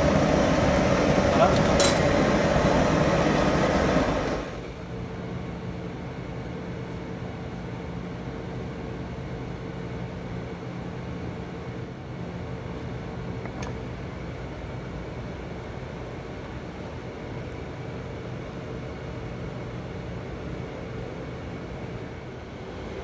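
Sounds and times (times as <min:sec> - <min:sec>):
gas burner roaring: 0:00.0 - 0:05.2
low machine hum: 0:00.0 - 0:23.0.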